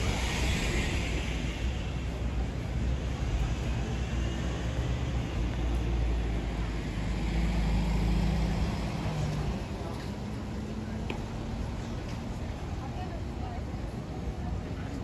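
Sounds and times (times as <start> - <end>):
low droning tone: 0.0 - 5.3
vehicle rumble: 0.0 - 15.0.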